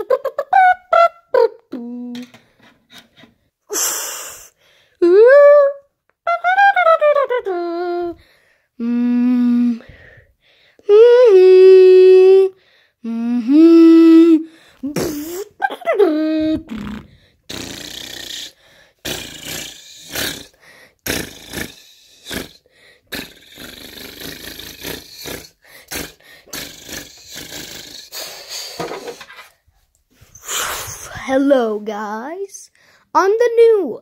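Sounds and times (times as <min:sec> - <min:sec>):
person making wordless mouth sounds: 0:00.0 - 0:02.4, 0:05.0 - 0:08.2, 0:08.8 - 0:09.8, 0:10.8 - 0:29.3.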